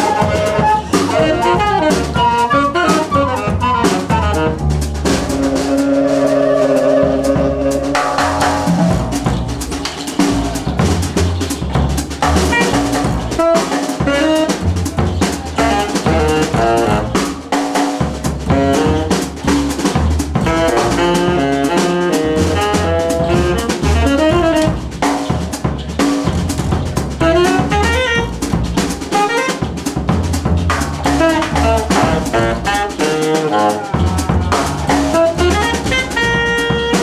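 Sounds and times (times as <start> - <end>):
wind instrument melody: 0.0 - 9.3, 12.2 - 17.5, 18.5 - 19.4, 20.4 - 25.3, 27.2 - 29.9, 31.0 - 37.0
bass line: 0.0 - 37.0
drum kit beat: 0.0 - 37.0.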